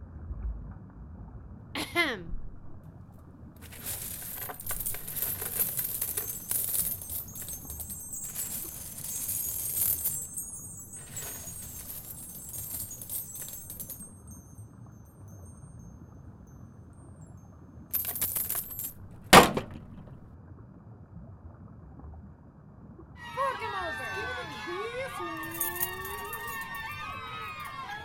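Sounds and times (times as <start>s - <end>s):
toy coins and beads clinking: 3.6s - 14.1s, 18.0s - 20.1s, 25.1s - 28.0s.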